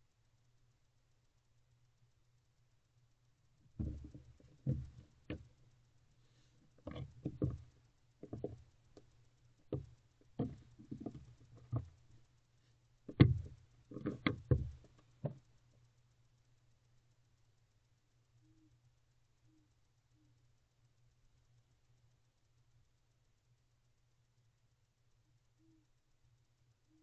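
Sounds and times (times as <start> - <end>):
owl thumping in wooden box: 3.8 - 5.4, 6.9 - 8.6, 9.7 - 12.0, 13.1 - 15.4.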